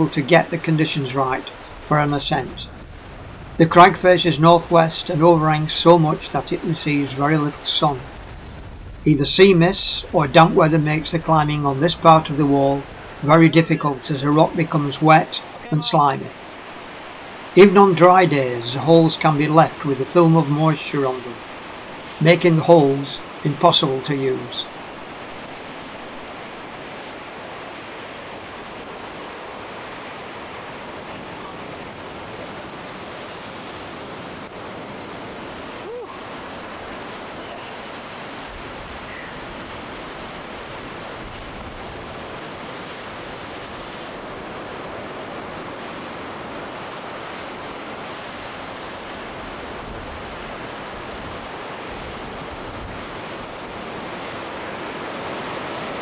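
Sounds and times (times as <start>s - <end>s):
sea surf washing: 0.0s - 56.0s
wind on microphone: 1.4s - 3.7s, 7.5s - 13.8s, 24.7s - 56.0s.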